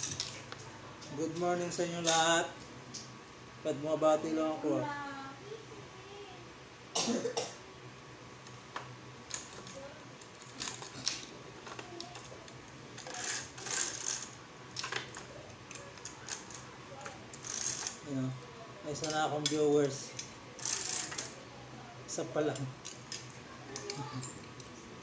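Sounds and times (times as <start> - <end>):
roller blind fittings clicking: 9.3 - 18.0, 19.0 - 21.4.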